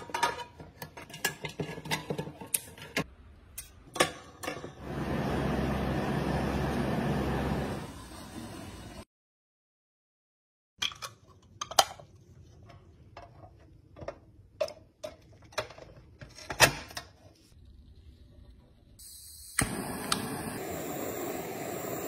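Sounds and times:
gas torch hissing: 4.8 - 9.0, 19.0 - 22.0.

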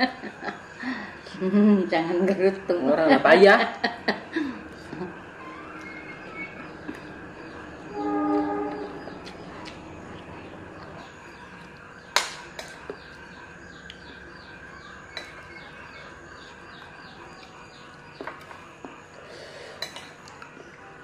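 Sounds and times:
faint high chirps: 4.5 - 21.0
metal spoon clinking on plates: 12.2 - 13.0, 15.1 - 15.6, 19.8 - 20.4.

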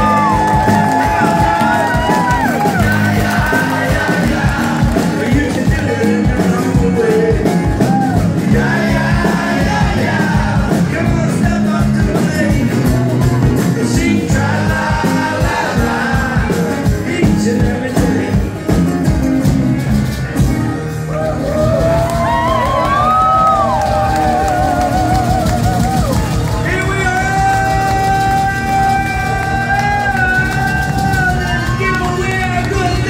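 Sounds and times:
man singing: 0.0 - 19.1, 26.6 - 33.0
electric bass: 0.0 - 33.0.

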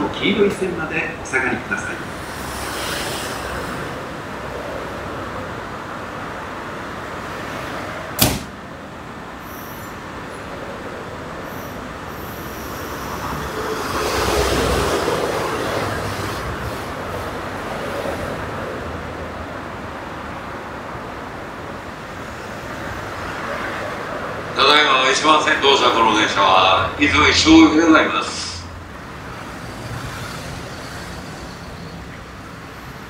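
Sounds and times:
sharp click: 8.2 - 8.6
electric train running: 9.4 - 18.6.

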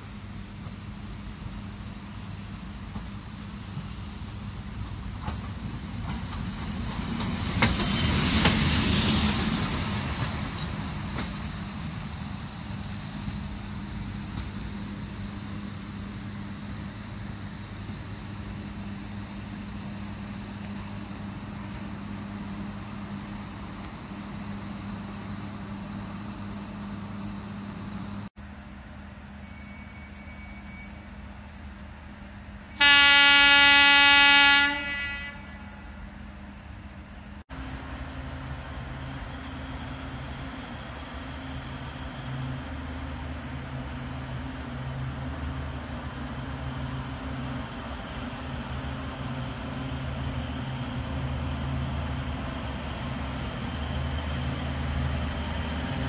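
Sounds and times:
train running: 0.0 - 56.0
train horn blast: 32.8 - 36.0.

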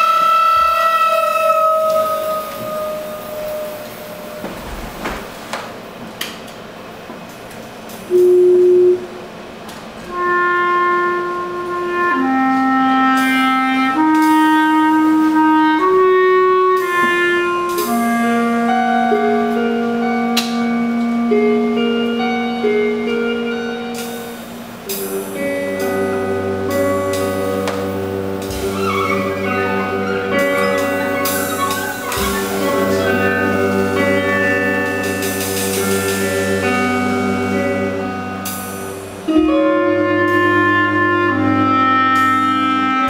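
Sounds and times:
clarinet playing held notes: 0.0 - 4.7, 10.1 - 22.7, 25.7 - 38.5, 39.3 - 43.0
quiet ensemble background: 0.0 - 43.0.

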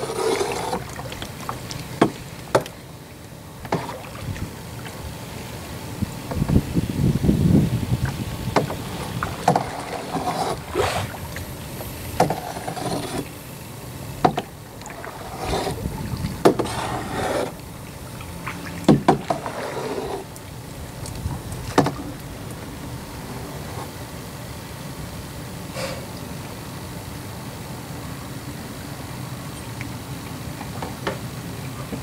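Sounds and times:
paddle knocking on hull: 0.0 - 2.8, 3.6 - 4.5, 8.0 - 11.2, 11.8 - 13.2, 14.2 - 17.6, 18.4 - 20.2, 21.3 - 22.2
paddle splashing in water: 0.0 - 6.6, 8.0 - 13.5, 14.1 - 24.0.

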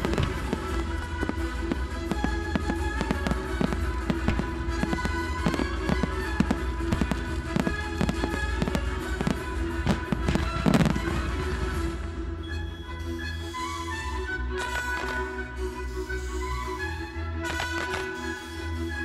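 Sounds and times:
fireworks bursting and crackling: 0.0 - 12.2, 14.6 - 15.4, 17.5 - 18.4
music soundtrack: 0.0 - 19.0.

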